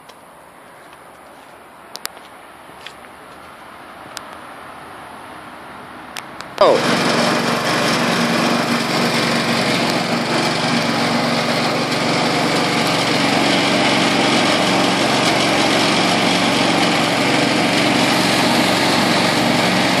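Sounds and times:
water pump engine running: 6.6 - 20.0.

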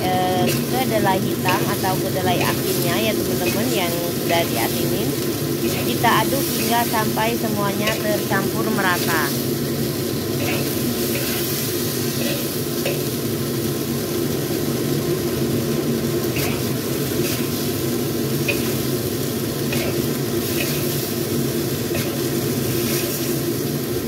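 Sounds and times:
food sizzling: 0.0 - 24.0
metal spatula scraping a wok: 10.3 - 13.1, 16.3 - 17.6, 19.7 - 21.1, 21.9 - 23.4.

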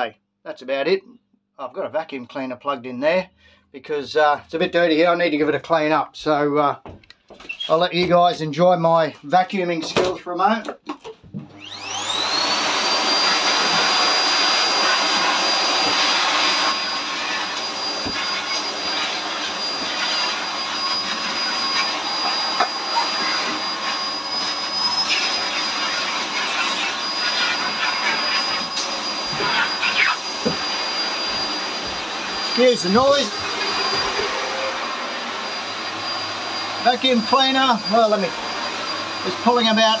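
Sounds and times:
vacuum cleaner motor roaring: 11.4 - 40.0
vacuum nozzle knocking: 13.1 - 16.8, 17.5 - 23.7, 27.6 - 34.7.

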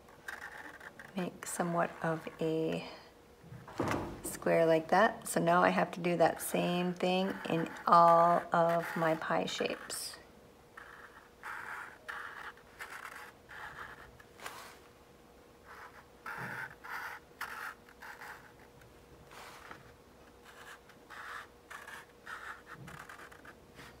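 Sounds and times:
marker scratching on paper plate: 0.2 - 3.0, 5.8 - 10.2, 10.8 - 14.8, 15.6 - 24.0.

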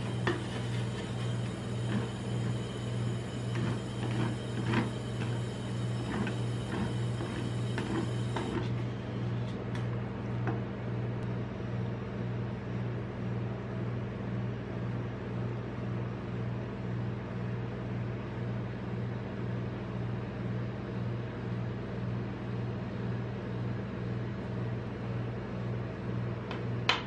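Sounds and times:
compressor humming: 0.0 - 12.6.

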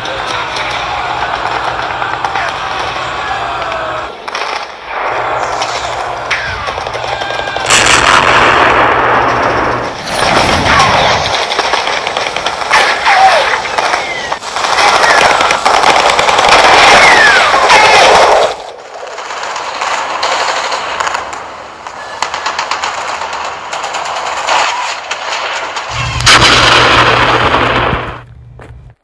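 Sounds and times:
rapid gunfire: 0.2 - 28.2
sci-fi blaster fire: 1.2 - 21.2, 22.1 - 28.3
loud burst with low hum: 4.9 - 13.0, 25.9 - 28.6.

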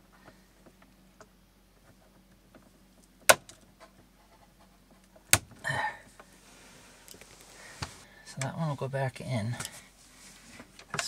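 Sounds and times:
wires rustling: 3.8 - 11.0.

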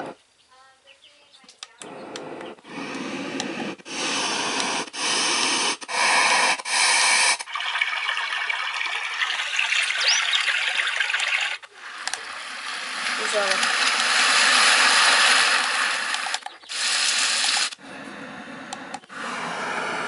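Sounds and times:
white noise machine hissing: 1.8 - 7.5, 11.7 - 20.0.

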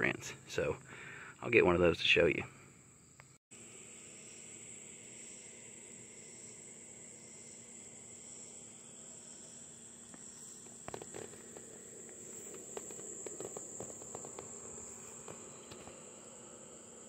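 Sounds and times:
crickets trilling: 0.0 - 17.0
soft clicks and rustles: 10.1 - 16.0.

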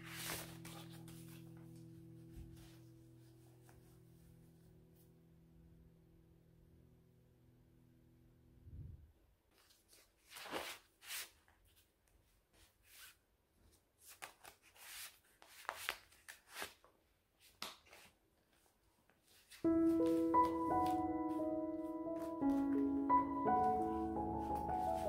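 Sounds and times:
rustling of handling: 0.0 - 4.0, 9.5 - 25.0.

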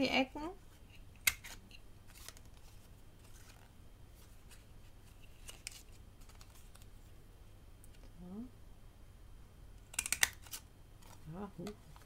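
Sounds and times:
faint paper handling: 1.4 - 7.1.

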